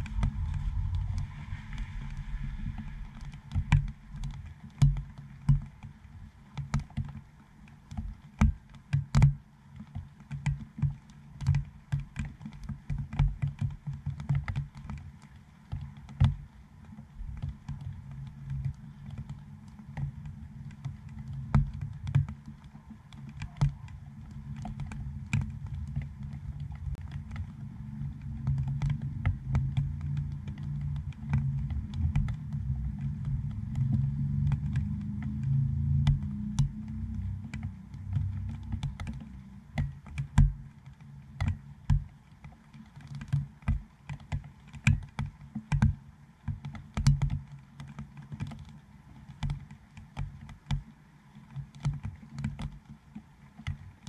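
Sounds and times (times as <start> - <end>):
steady low rumble: 0.0 - 6.5, 16.4 - 42.4
raindrops tapping on camera housing: 0.0 - 54.0.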